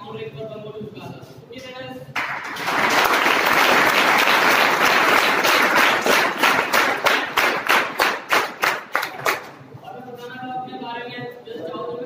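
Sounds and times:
audience applause: 0:02.2 - 0:09.5
rhythmic clapping in unison: 0:02.2 - 0:09.6.

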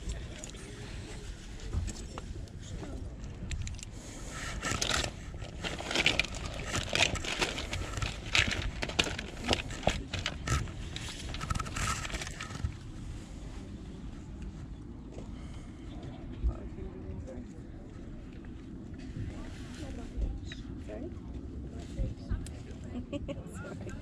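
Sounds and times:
plastic figures clattering: 0:03.4 - 0:12.8.

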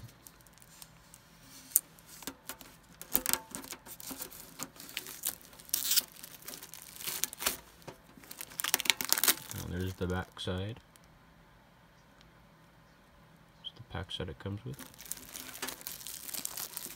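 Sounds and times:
plastic wrap crinkling: 0:00.0 - 0:11.1, 0:14.7 - 0:16.9
fingernails scratching plastic wrap: 0:03.0 - 0:10.0, 0:14.8 - 0:16.9.

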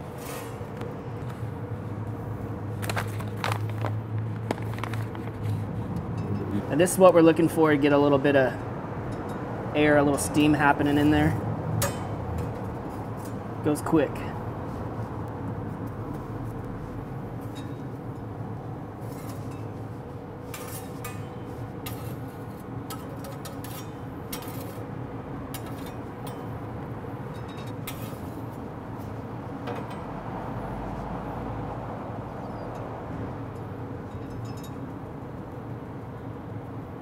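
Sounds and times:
grill low hum and rush: 0:00.0 - 0:37.0
metal spatula scraping grill grates: 0:19.0 - 0:24.9, 0:27.8 - 0:28.4.

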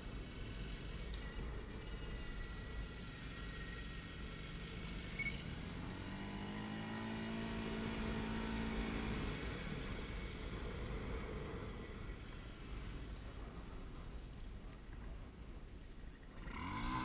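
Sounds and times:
atv motor drone: 0:00.0 - 0:14.1, 0:16.2 - 0:17.0
low outdoor rumble: 0:00.0 - 0:17.0.

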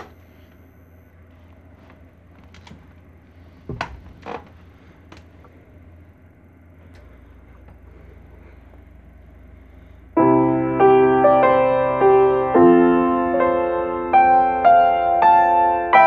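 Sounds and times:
room hiss: 0:00.0 - 0:16.0
piano chords: 0:10.1 - 0:16.0.

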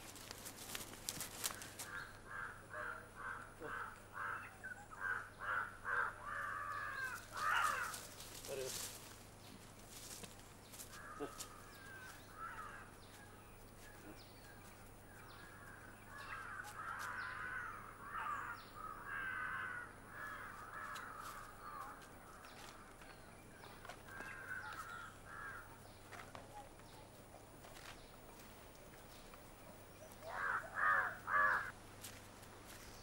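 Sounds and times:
crows cawing: 0:01.4 - 0:08.9, 0:10.8 - 0:13.0, 0:15.4 - 0:23.0, 0:23.9 - 0:25.8, 0:30.2 - 0:31.8.

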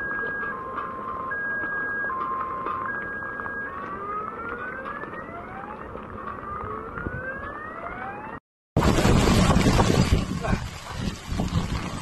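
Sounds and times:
car alarm rising sweeps: 0:00.0 - 0:08.4
rushing flood water: 0:08.8 - 0:12.0.

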